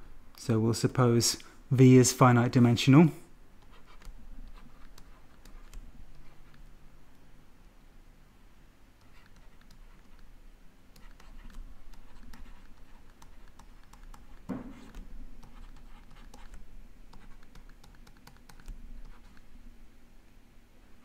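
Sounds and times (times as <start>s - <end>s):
stylus tapping on tablet screen: 10.9s - 19.4s
dull knock: 14.5s - 14.9s.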